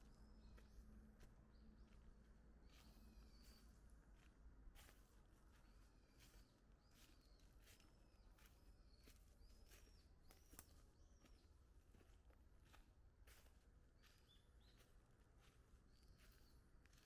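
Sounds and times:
bird chirping: 5.6 - 12.1, 13.3 - 17.0.

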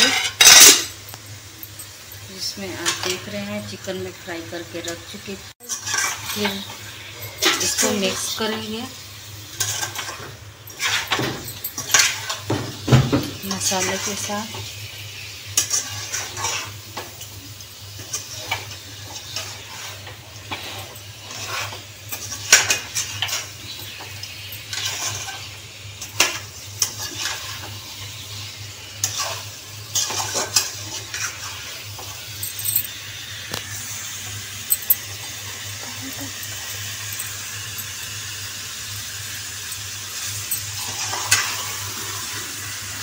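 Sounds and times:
metal spatula scraping steel pan: 0.0 - 1.0, 5.6 - 6.6, 19.3 - 24.0.

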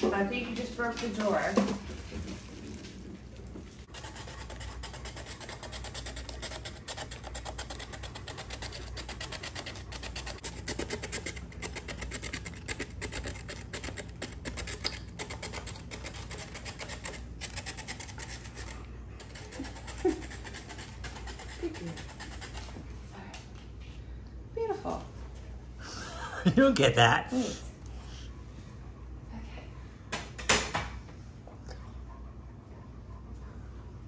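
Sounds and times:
carrot rasping on grater: 3.9 - 22.7.

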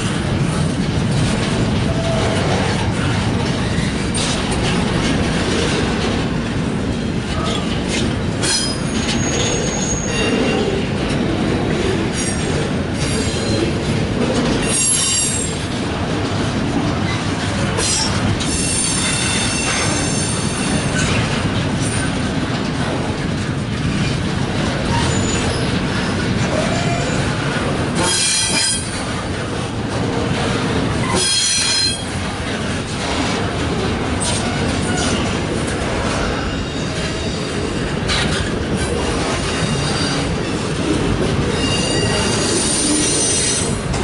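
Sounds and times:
freight train rumbling past: 0.0 - 44.0
wheels clicking over rail joints: 0.0 - 44.0
wheels squealing: 41.5 - 43.7.

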